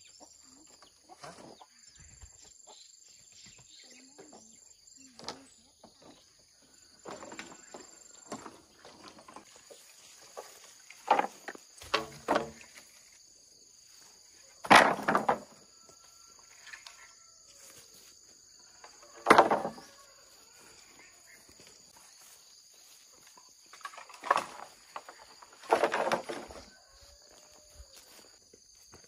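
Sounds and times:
loud knocks and scrapes: 14.6s - 15.6s, 19.2s - 19.9s, 24.2s - 26.7s.

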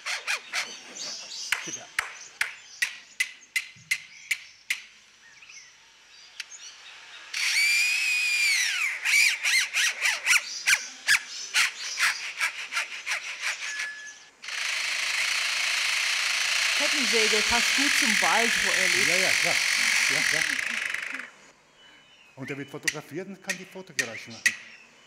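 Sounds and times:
power tool drone: 7.3s - 9.8s, 14.4s - 21.4s.

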